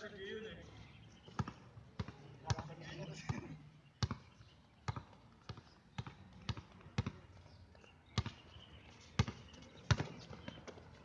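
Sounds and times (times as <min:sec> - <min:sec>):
basketball bouncing on court: 0:01.3 - 0:07.2, 0:08.2 - 0:08.4, 0:09.2 - 0:10.8.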